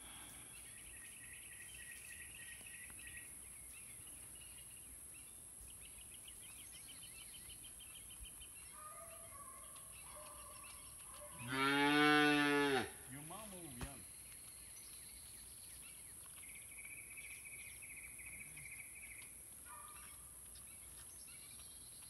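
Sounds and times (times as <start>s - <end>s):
birds chirping: 0.0s - 22.0s
calf mooing: 11.4s - 12.9s.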